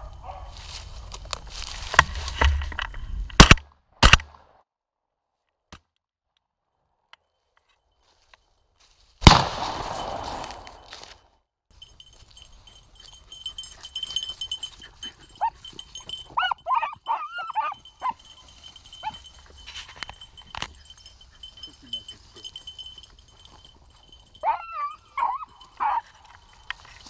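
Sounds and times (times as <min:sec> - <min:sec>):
sharp crack: 0:03.3 - 0:04.5, 0:09.2 - 0:10.9
shotgun shot: 0:03.4 - 0:04.3, 0:09.2 - 0:10.8
dogs baying: 0:12.1 - 0:27.0.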